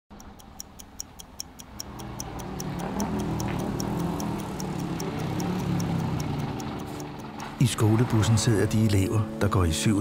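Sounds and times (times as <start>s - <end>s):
fast clock-like ticking: 0.1s - 10.0s
bus engine running: 1.8s - 9.5s.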